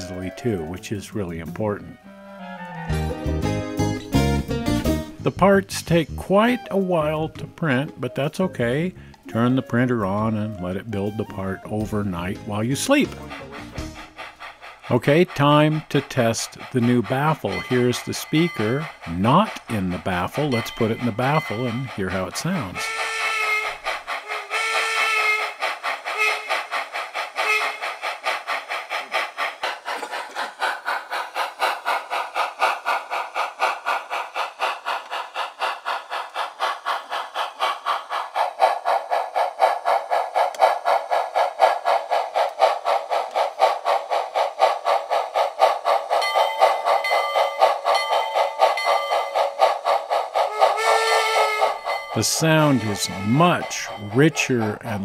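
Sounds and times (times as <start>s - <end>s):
steam locomotive chuffing: 0.0s - 2.2s, 2.8s - 55.0s
train whistle: 2.0s - 3.4s, 22.8s - 25.5s, 26.2s - 26.5s, 27.4s - 27.8s, 50.5s - 54.5s.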